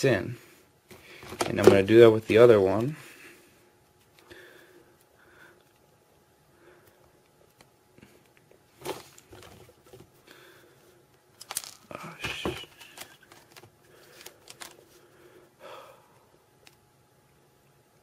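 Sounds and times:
rustling and small clicks of pliers: 11.1 - 11.9, 12.6 - 14.8.

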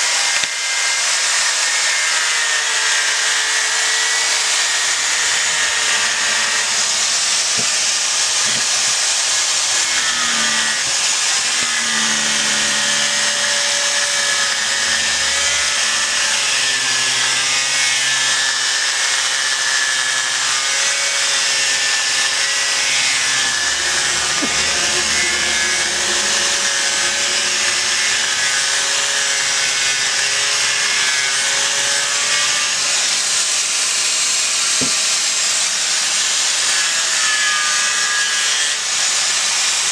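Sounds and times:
angle grinder grinding wood: 0.0 - 39.9.

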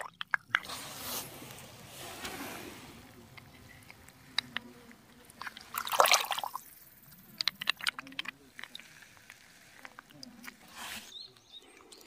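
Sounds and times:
water drips and clicks: 0.0 - 0.7, 3.3 - 10.7
water splashing: 0.0 - 11.1.

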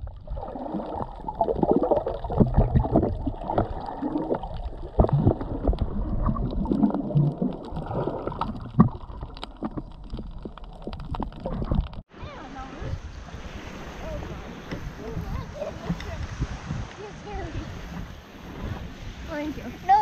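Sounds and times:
underwater gurgling and bubbling: 0.0 - 12.0.

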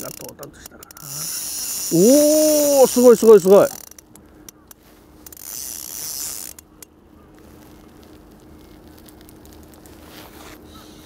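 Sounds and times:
fishing reel whirring: 0.0 - 4.1, 5.2 - 6.9
fishing reel ticking: 0.0 - 6.9.

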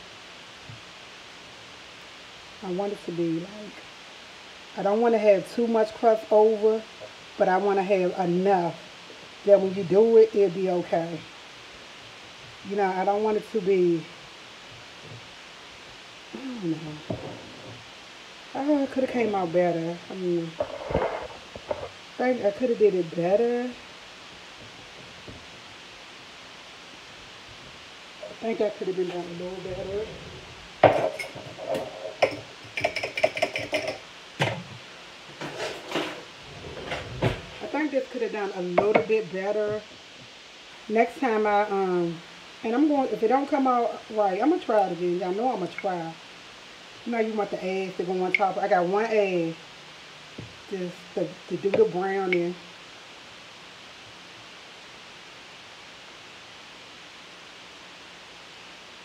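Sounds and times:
steady background hiss: 0.0 - 59.0
dishes and utensils clattering: 30.8 - 34.6.

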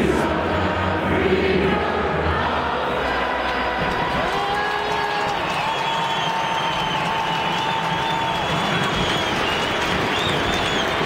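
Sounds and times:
crowd cheering and applauding: 2.3 - 11.0.

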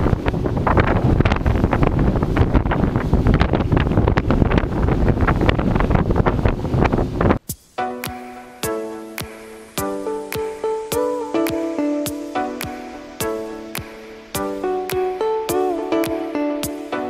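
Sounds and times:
boat running at speed: 0.0 - 7.4
hull slapping waves: 0.0 - 7.4
wind buffeting microphone: 0.0 - 7.5.

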